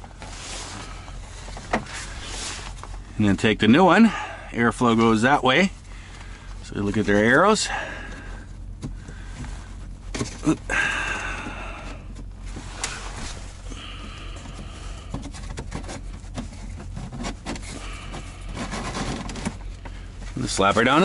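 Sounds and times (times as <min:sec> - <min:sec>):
steady low hum: 0:00.0 - 0:21.0
paper filter rustling and scraping: 0:00.1 - 0:03.0, 0:12.4 - 0:21.0.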